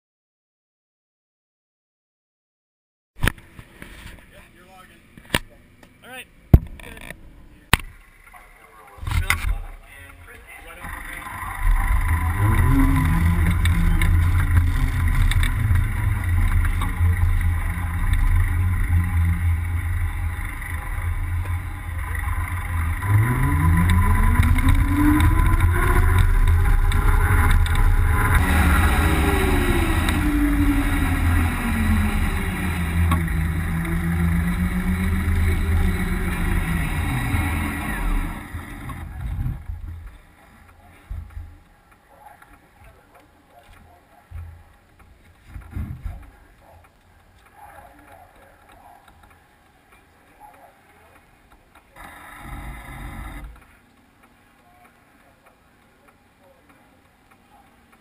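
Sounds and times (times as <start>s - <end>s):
wind and road noise rumble: 3.2s - 55.4s
electric motor whining: 10.4s - 40.0s, 52.0s - 53.6s.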